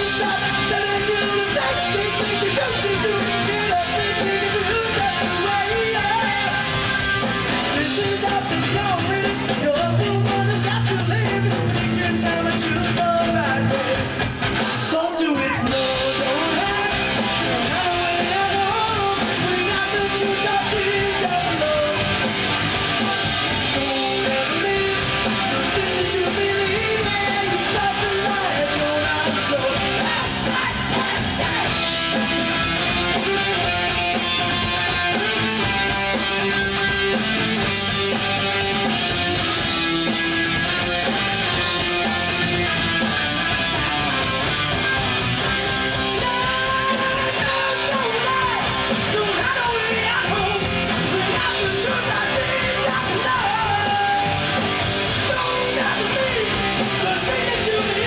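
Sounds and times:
drums: 0:00.0 - 0:58.0
electric guitars: 0:00.0 - 0:58.0
singer shouting into microphone: 0:14.7 - 0:22.2, 0:23.0 - 0:32.0, 0:45.8 - 0:58.0.

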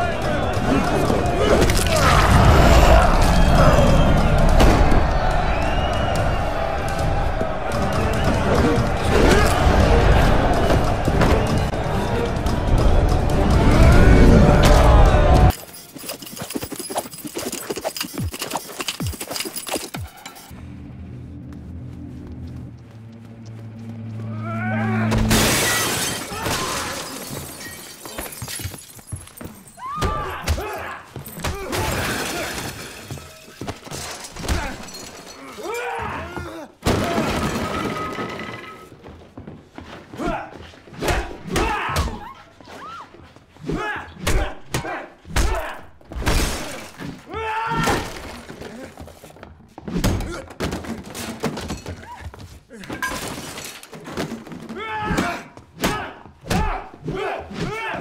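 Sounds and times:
things smashing and breaking: 0:25.1 - 0:29.8, 0:31.2 - 0:35.6, 0:36.8 - 0:38.8, 0:52.9 - 0:54.7
glass shattering: 0:25.3 - 0:29.8, 0:31.2 - 0:35.7, 0:53.0 - 0:53.9
men grunting: 0:35.4 - 0:36.8.

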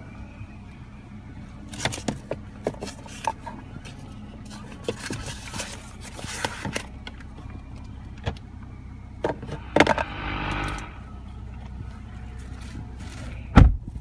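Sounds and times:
low cabin hum: 0:07.4 - 0:12.4
brief rushing noise: 0:09.2 - 0:11.2.

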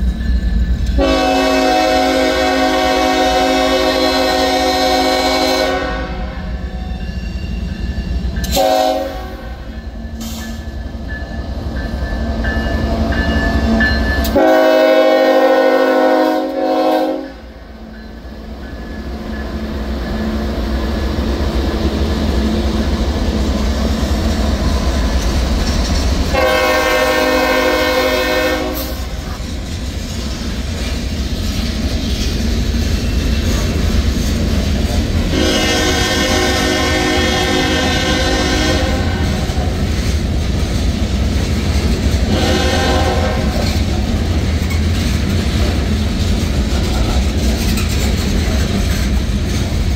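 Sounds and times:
locomotive rumble: 0:00.0 - 0:49.9
locomotive horn blasts: 0:00.9 - 0:06.6, 0:08.5 - 0:09.7, 0:14.3 - 0:17.6, 0:26.3 - 0:29.4, 0:35.3 - 0:39.4, 0:42.2 - 0:43.8.

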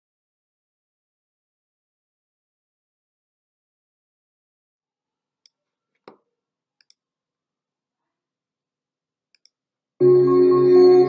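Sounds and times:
ambient music with held tones: 0:10.0 - 0:11.0.

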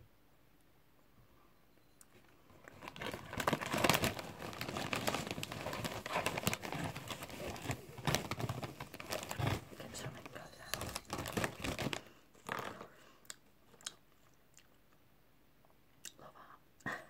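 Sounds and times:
crisp packet crinkling: 0:02.6 - 0:12.8.

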